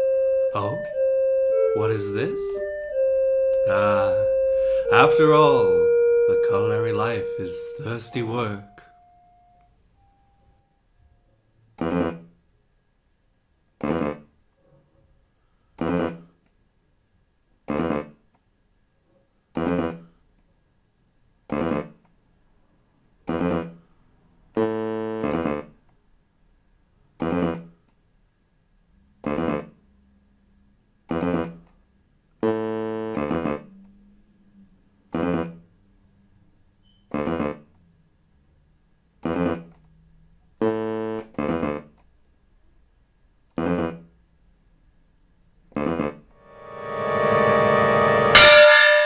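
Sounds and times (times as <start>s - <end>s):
sparse piano notes and chords: 0.0s - 9.6s, 46.4s - 49.0s.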